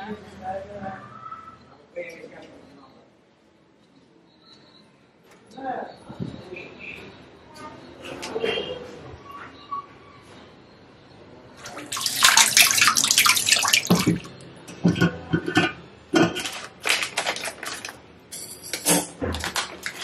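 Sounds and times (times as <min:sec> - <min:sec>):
plastic packet crinkling: 0:16.4 - 0:18.0, 0:19.3 - 0:20.0
scissors cutting plastic: 0:19.3 - 0:20.0.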